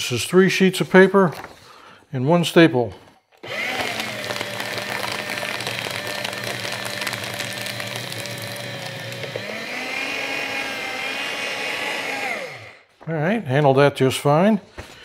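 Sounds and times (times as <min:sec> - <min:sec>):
paper shredder motor: 0:03.4 - 0:12.9
crackle of paper cutting: 0:03.7 - 0:09.4.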